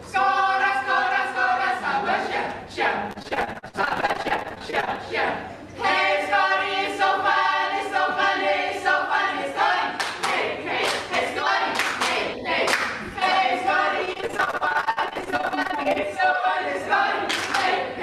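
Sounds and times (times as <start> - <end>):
women singing together: 0.0 - 18.0
hand claps: 10.0 - 13.0, 17.3 - 17.8.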